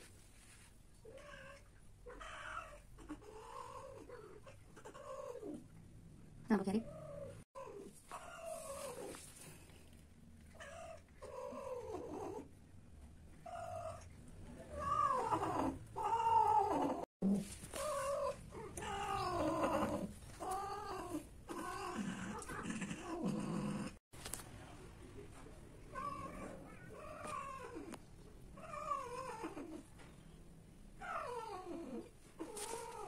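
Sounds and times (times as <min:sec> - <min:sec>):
cats yowling: 0:13.5 - 0:17.1, 0:17.7 - 0:24.0, 0:25.9 - 0:28.0.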